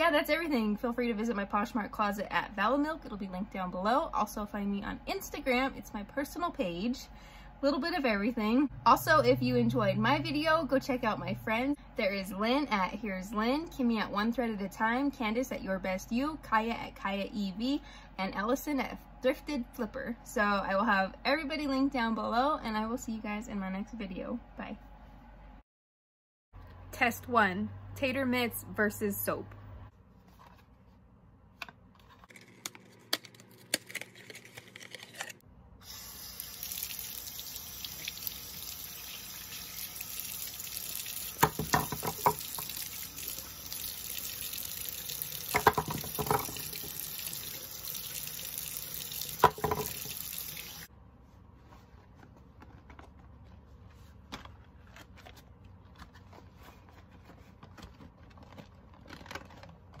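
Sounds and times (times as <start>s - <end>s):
knocks or splashes: 41.3s - 42.9s, 45.4s - 47.0s, 49.3s - 50.2s
tap running into sink: 41.3s - 42.9s, 45.4s - 47.3s, 49.0s - 50.8s
cardboard box crinkling: 54.3s - 60.0s.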